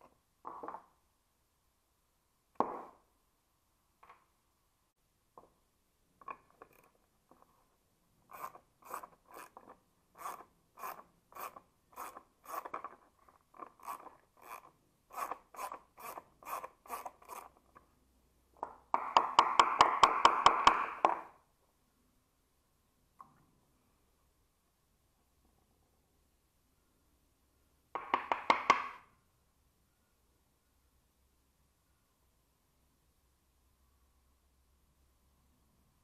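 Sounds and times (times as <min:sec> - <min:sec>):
hand ratchet clicking: 0:08.3 - 0:17.6.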